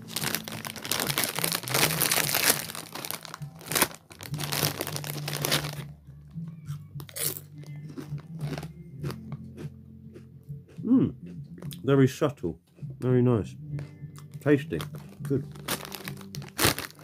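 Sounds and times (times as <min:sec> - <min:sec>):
crisp crunching and chewing: 0:00.0 - 0:05.9, 0:06.7 - 0:10.8, 0:14.2 - 0:17.0
foil crisp packet crinkling: 0:00.0 - 0:06.0, 0:14.7 - 0:17.0.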